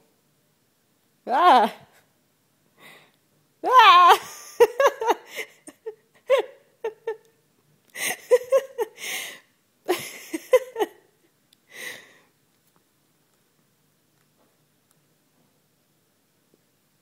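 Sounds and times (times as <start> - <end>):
woman laughing hard: 3.7 - 7.4, 8.0 - 11.1.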